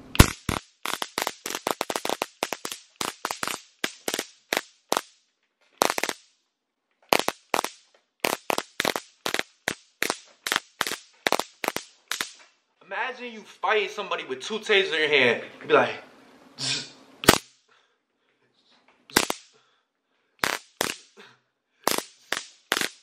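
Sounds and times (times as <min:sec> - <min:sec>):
stun gun zapping: 0:00.0 - 0:05.2, 0:05.8 - 0:06.3, 0:07.1 - 0:12.4, 0:17.2 - 0:17.6, 0:19.1 - 0:19.5, 0:20.4 - 0:21.2, 0:21.8 - 0:23.0.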